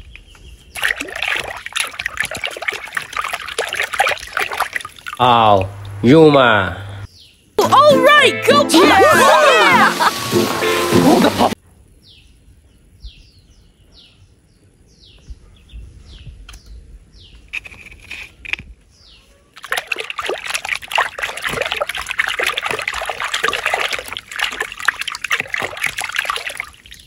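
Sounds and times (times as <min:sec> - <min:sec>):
hand splashing in tub of water: 0:00.8 - 0:06.0, 0:19.6 - 0:27.0.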